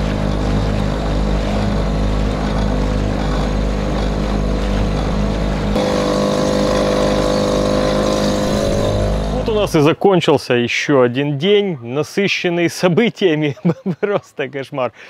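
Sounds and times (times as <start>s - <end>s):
outboard motor running: 0.0s - 9.6s.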